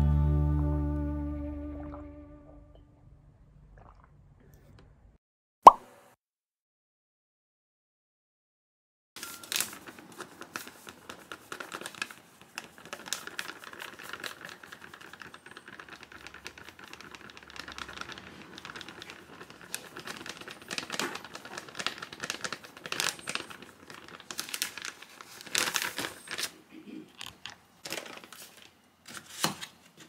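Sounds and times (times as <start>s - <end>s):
flour trickling into bowl: 9.2s - 26.5s
bag crinkling: 9.2s - 26.6s, 27.2s - 29.5s.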